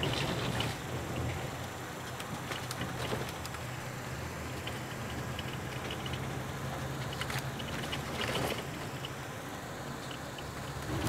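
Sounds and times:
light clicks and rattles: 0.0s - 3.8s, 4.5s - 9.2s
car cabin road and engine hum: 0.0s - 11.0s.

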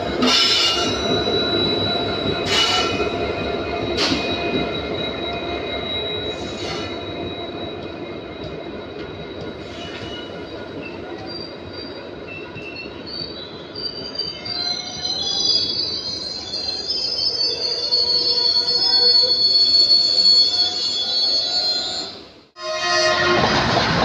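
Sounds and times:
train wheels rumbling on rail: 0.0s - 16.2s, 22.8s - 24.0s.

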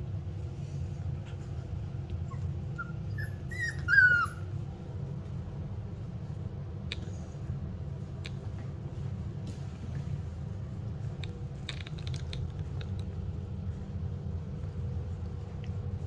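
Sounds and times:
puppy whimpering: 2.2s - 4.5s.

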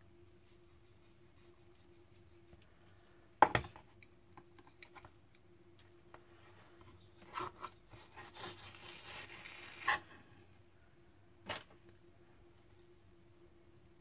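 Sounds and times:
knife scraping cutting board: 7.2s - 10.1s.

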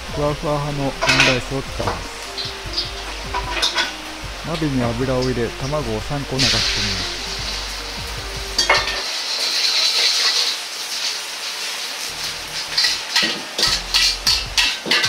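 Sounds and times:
eggs sizzling in hot oil: 0.0s - 15.0s
metal spatula scraping a wok: 3.0s - 4.0s, 8.6s - 15.0s.

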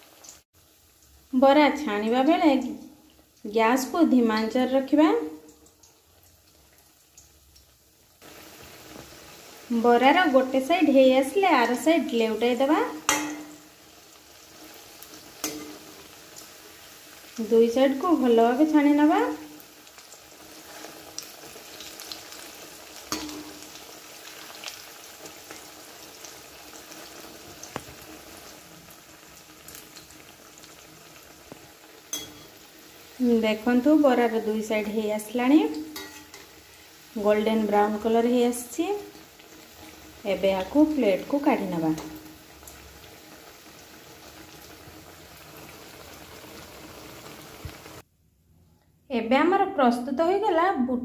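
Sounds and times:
food sizzling in hot oil: 0.0s - 48.0s
metal spatula clicking on pan: 13.1s - 13.6s, 23.1s - 23.6s, 32.1s - 32.5s, 36.0s - 36.5s.

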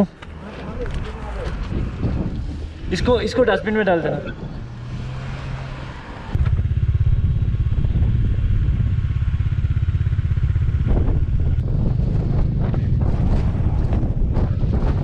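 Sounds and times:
wind buffeting microphone: 0.6s - 15.0s
motorcycle engine running: 6.4s - 15.0s.

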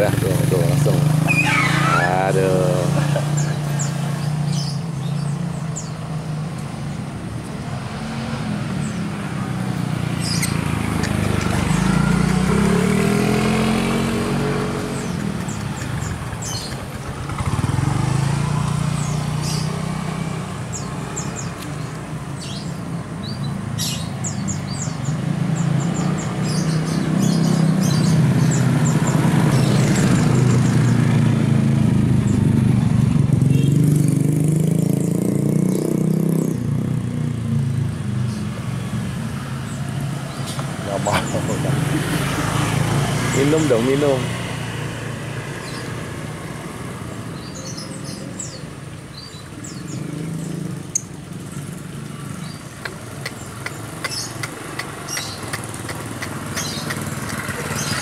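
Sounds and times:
motor vehicle engines passing: 0.0s - 58.0s
high bird chirps: 1.2s - 2.6s, 10.2s - 12.4s, 52.4s - 58.0s.

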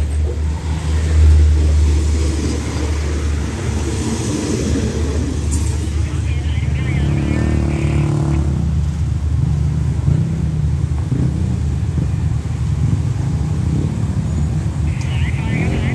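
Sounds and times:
engines idling and pulling away: 0.0s - 15.9s.

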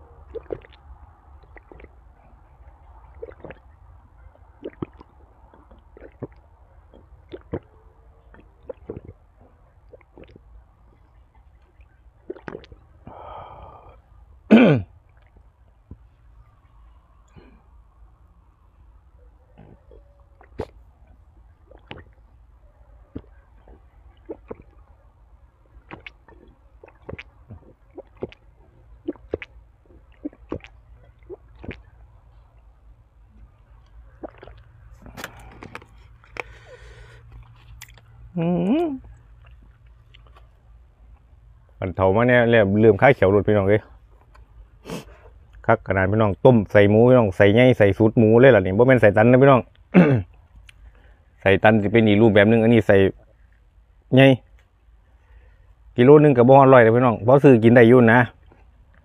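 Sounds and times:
wet chewing and mouth smacking: 0.0s - 13.1s, 15.0s - 17.5s, 19.5s - 38.4s, 39.0s - 41.7s, 49.7s - 51.1s, 58.3s - 59.0s.

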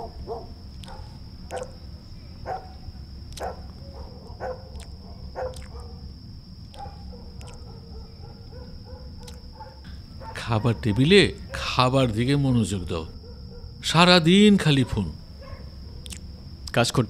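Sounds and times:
dog barking: 0.0s - 1.8s, 2.4s - 2.8s, 3.4s - 6.1s, 6.7s - 11.6s, 13.1s - 13.8s, 14.8s - 16.0s.

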